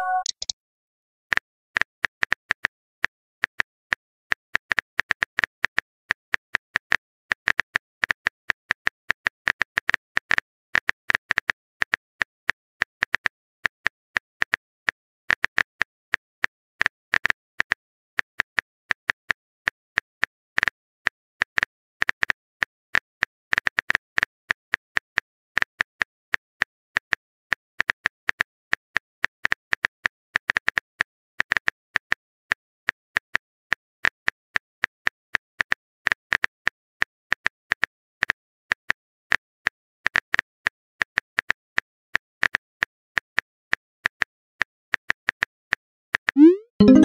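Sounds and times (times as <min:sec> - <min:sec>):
phone keyboard typing clicks: 0:00.0 - 0:00.5.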